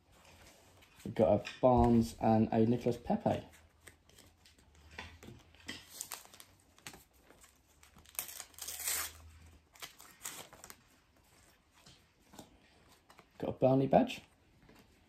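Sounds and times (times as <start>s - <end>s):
foil pack tearing and crinkling: 5.9s - 10.8s.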